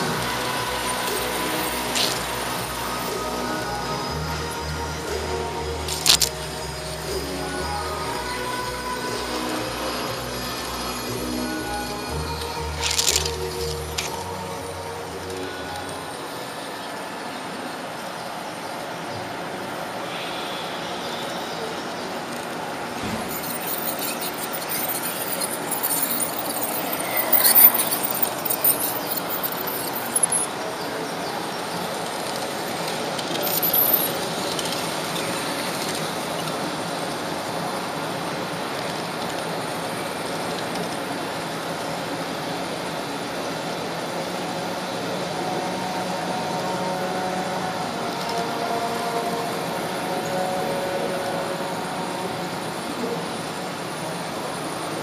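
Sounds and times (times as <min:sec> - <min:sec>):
high-pitched wheel squealing: 0:00.0 - 0:16.7, 0:20.0 - 0:31.0, 0:32.0 - 0:37.7
model train rolling on track: 0:00.0 - 0:55.0.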